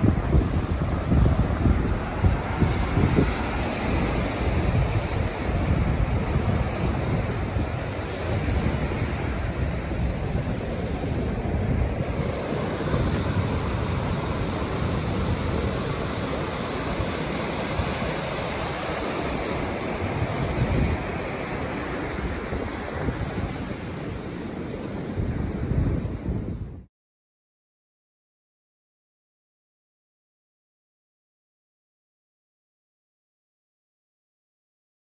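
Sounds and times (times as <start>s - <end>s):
ocean surf rushing: 0.0s - 26.9s
wind buffeting microphone: 0.0s - 26.9s.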